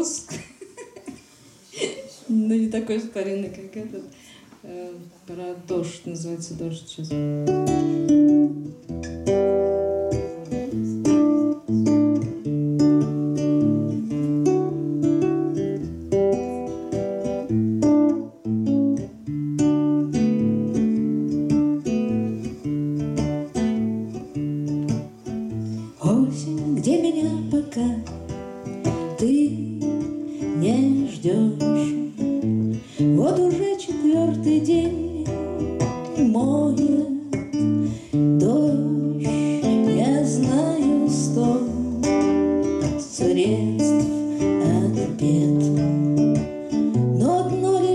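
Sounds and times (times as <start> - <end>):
strummed acoustic guitar: 7.1 - 47.9
woman singing: 25.8 - 47.9.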